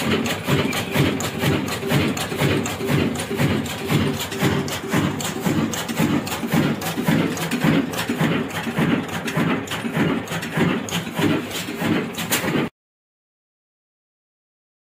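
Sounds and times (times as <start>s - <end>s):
diesel engine thumping slowly: 0.0s - 12.7s
sharp engine clicks: 0.0s - 12.7s.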